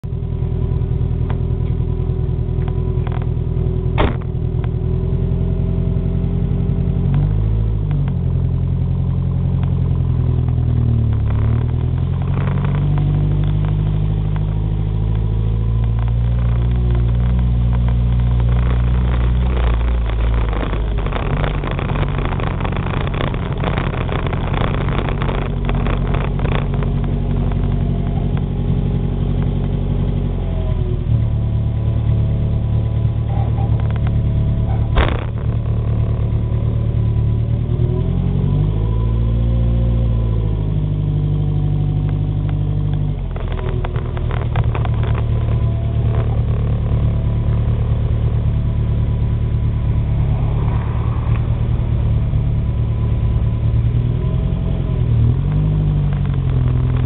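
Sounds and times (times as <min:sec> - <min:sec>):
car engine running: 0:00.0 - 0:57.0
sharp knock: 0:04.0 - 0:04.3
short crackles: 0:10.4 - 0:29.8, 0:32.9 - 0:37.2, 0:41.9 - 0:48.9, 0:50.0 - 0:57.0.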